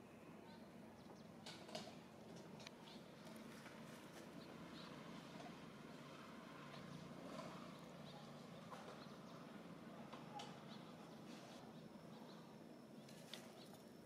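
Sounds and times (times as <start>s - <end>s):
faint outdoor ambience: 0.0s - 14.0s.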